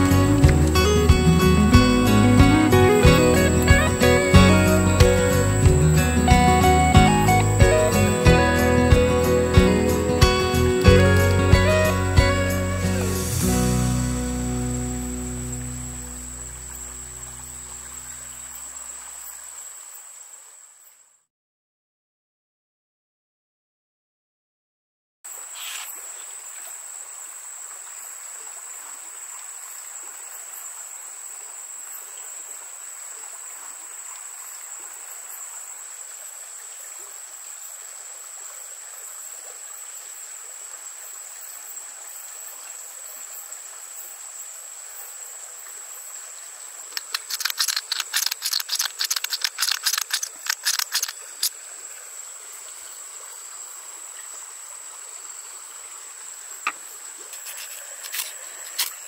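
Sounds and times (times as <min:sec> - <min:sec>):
high insect trill: 0:00.0 - 0:21.1, 0:25.3 - 0:59.0
faint hiss of running water: 0:00.0 - 0:21.3, 0:25.3 - 0:59.0
spice mill grinding: 0:47.0 - 0:51.2.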